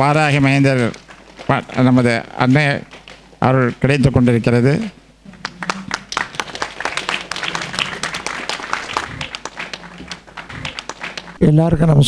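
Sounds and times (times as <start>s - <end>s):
audience applauding: 0.1s - 2.2s, 5.3s - 11.4s.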